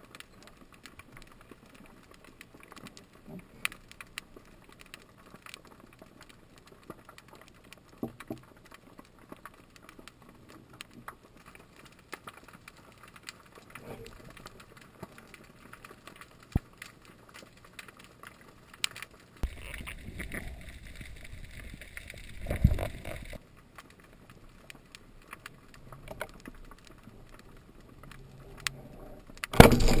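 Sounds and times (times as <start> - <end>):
underwater clicks and crackles: 0.0 - 30.0
muffled rumbling water: 19.4 - 30.0.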